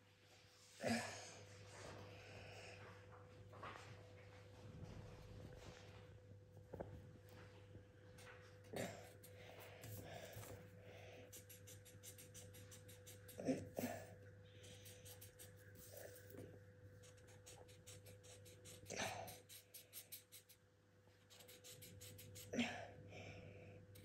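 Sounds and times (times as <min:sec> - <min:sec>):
marker scratching on paper: 0:11.3 - 0:13.9, 0:14.6 - 0:16.4, 0:17.0 - 0:20.6, 0:21.3 - 0:22.5.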